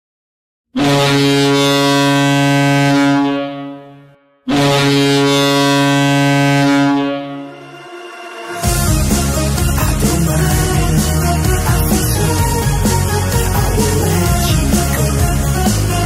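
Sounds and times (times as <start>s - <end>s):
goal horn blasts: 0.8s - 9.4s.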